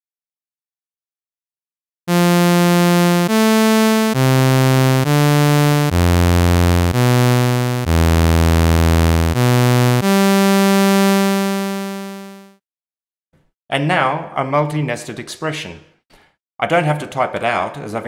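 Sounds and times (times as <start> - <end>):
synthesizer sawtooth notes: 2.1 - 12.6.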